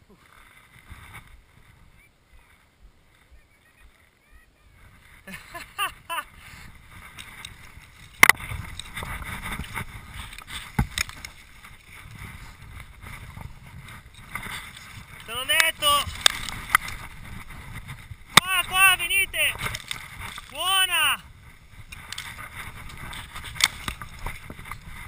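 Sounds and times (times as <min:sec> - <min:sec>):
skis hissing through snow: 0:04.8 - 0:20.5.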